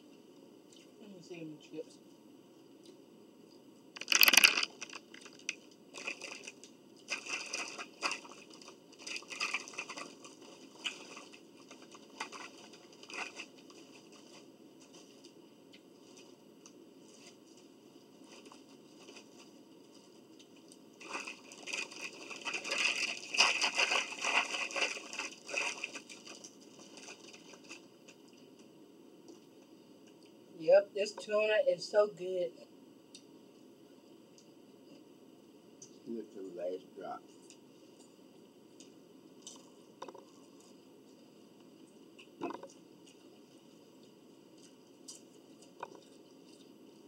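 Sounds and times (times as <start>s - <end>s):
paper bag crinkling: 4.0s - 15.3s, 21.0s - 28.0s.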